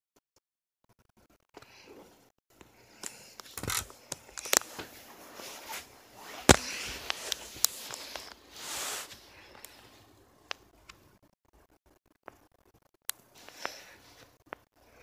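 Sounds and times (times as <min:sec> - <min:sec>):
fabric rustling and scraping: 0:04.6 - 0:09.3.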